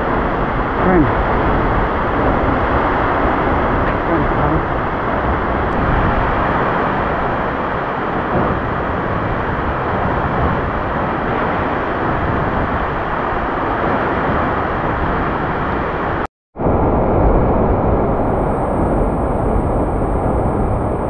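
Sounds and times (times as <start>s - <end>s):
waterfall roaring: 0.0s - 16.3s.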